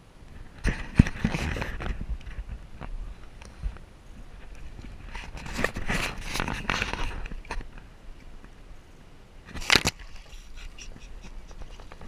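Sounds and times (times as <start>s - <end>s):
shallow water splashing and sloshing: 9.5s - 12.0s.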